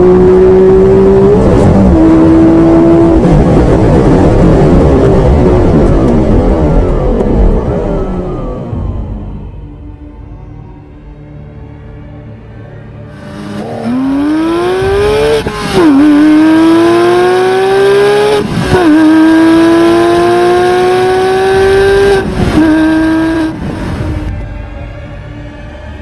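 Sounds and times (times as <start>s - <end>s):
car engine accelerating through gears: 0.0s - 9.2s, 13.1s - 24.3s.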